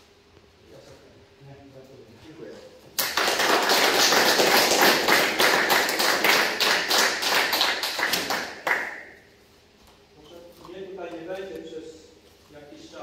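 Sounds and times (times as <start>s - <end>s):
group applauding: 3.0s - 9.2s.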